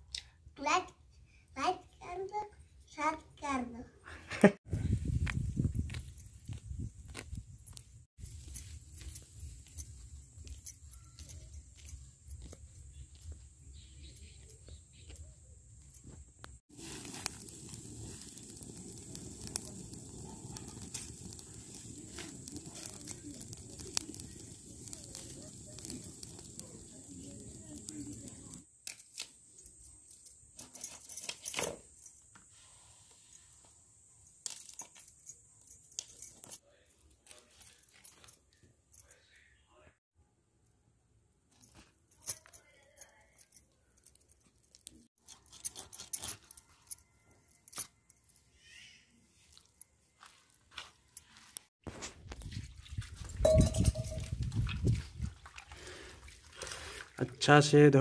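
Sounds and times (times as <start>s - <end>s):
bangles clinking: 5.2s - 32.4s, 33.2s - 36.6s, 37.3s - 39.4s, 41.5s - 48.6s, 53.2s - 54.6s
dry leaves rustling: 8.2s - 14.4s, 16.7s - 28.6s.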